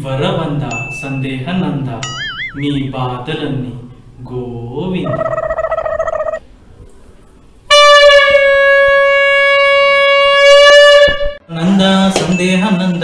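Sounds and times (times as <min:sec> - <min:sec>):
man talking: 0:00.0 - 0:05.4.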